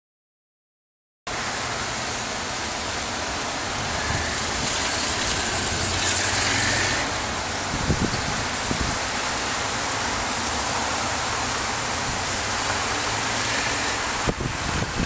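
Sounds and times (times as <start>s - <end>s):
distant road traffic: 1.3s - 15.0s
wind rushing: 3.7s - 9.1s, 12.0s - 15.0s.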